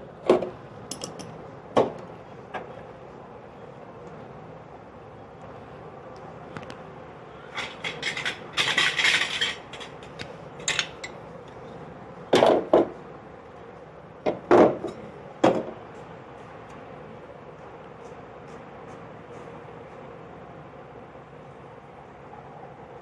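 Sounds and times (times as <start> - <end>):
metal scraping rattle: 7.5 - 10.1.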